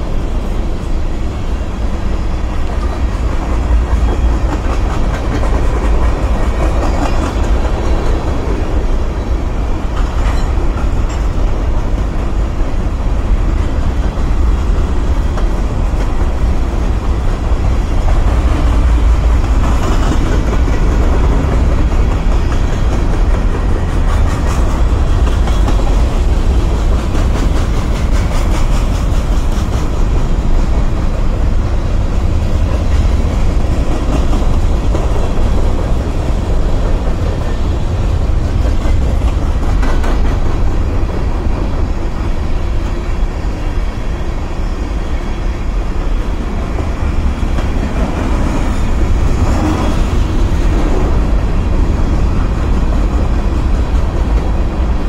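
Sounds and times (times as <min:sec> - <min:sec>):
freight train rumbling past: 0:00.0 - 0:55.0
wheels clicking over rail joints: 0:02.5 - 0:43.7.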